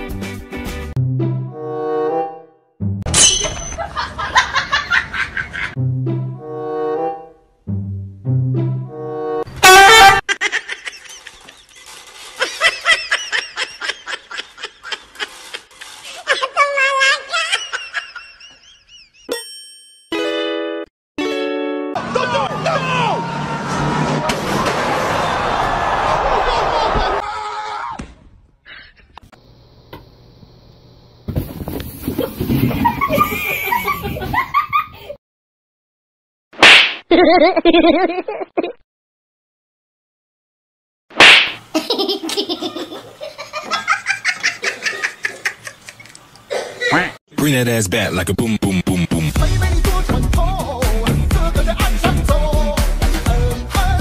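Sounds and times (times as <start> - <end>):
person laughing and giggling: 3.8 - 5.8, 10.0 - 19.3, 32.2 - 35.2, 37.1 - 38.8, 41.7 - 47.2
people laughing and talking: 22.0 - 23.0.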